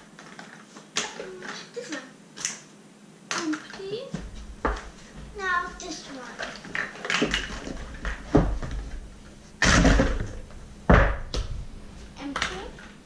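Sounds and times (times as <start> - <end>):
boxes and plastic eggs clattering: 3.3 - 11.5.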